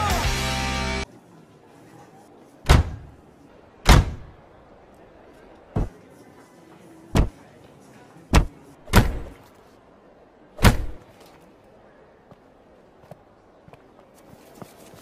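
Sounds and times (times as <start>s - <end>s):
car doors slamming: 2.7s - 3.1s, 3.8s - 4.3s.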